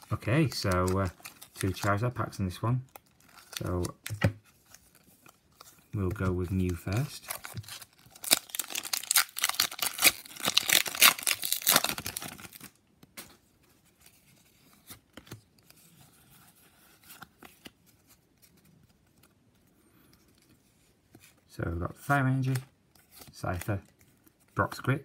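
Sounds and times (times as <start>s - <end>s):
foil pack tearing and crinkling: 7.4s - 12.7s.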